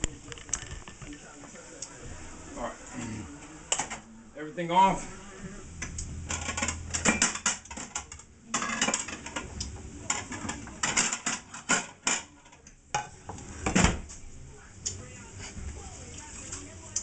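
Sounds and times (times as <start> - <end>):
crockery and cutlery clattering: 5.8 - 14.1.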